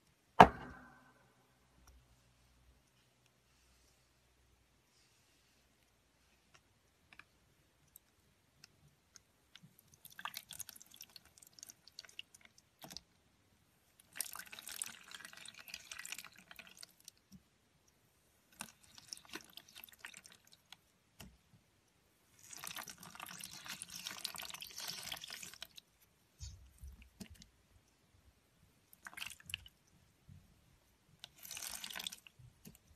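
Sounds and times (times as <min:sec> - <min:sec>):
slime squelching and crackling: 0:18.5 - 0:20.9, 0:22.3 - 0:27.6, 0:28.9 - 0:29.9, 0:31.2 - 0:32.9.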